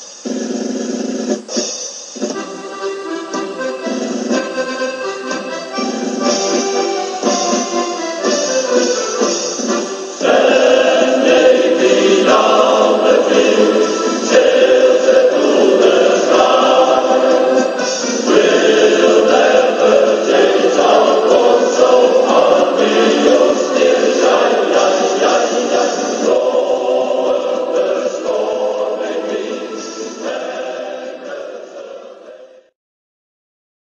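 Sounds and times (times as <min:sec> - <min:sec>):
instrumental music: 0:01.3 - 0:31.4
choir singing: 0:02.3 - 0:32.7.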